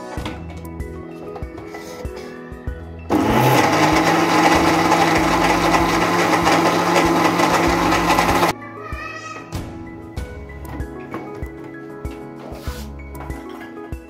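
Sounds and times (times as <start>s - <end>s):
electric blender running: 3.1s - 8.5s.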